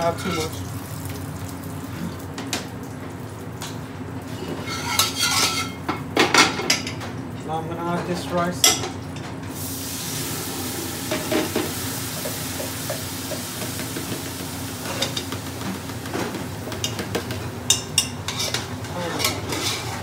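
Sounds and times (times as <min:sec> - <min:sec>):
ghee sizzling: 0:00.0 - 0:05.8, 0:09.5 - 0:20.0
spoon scraping a pot: 0:04.6 - 0:05.8, 0:17.7 - 0:20.0.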